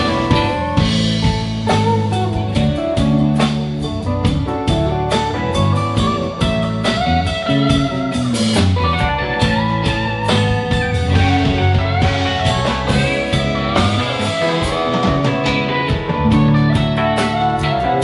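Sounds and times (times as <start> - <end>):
bass guitar: 0.0 - 18.0
drum kit: 0.0 - 18.0
electric guitars bending notes: 0.0 - 18.0
keyboard: 0.0 - 18.0.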